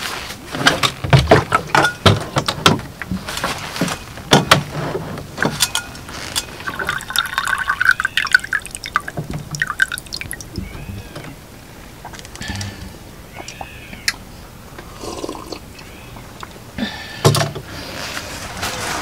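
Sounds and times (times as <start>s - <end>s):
water pouring into metal cup: 6.6s - 10.5s
water dripping: 6.6s - 11.2s.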